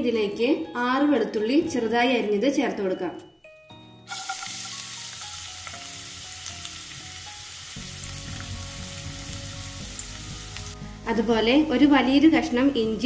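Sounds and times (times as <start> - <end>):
garlic sizzling in oil: 4.1 - 11.2.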